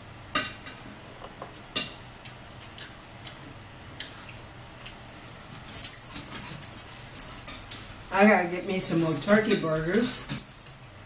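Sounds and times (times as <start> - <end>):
chewing: 2.2 - 8.0.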